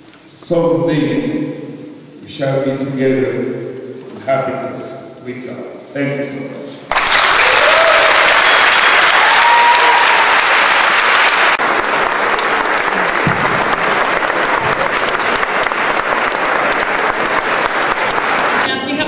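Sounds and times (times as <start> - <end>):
audience applauding: 6.9 - 19.0.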